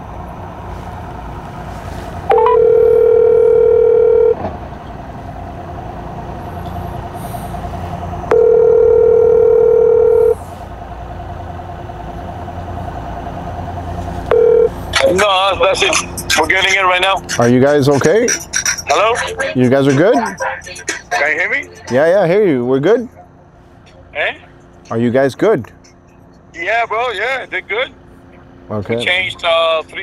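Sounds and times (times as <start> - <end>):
telephone ringback tone: 2.3 - 4.4, 8.3 - 10.4, 14.3 - 14.8.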